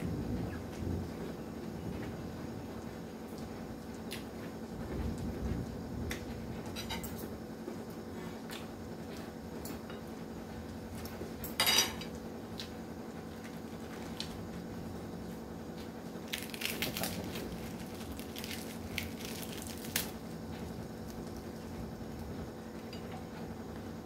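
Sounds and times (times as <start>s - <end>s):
faint steady hum: 0.0s - 24.0s
cutlery clatter: 11.6s - 12.1s
cabbage leaves tearing: 13.4s - 14.6s, 16.0s - 20.4s.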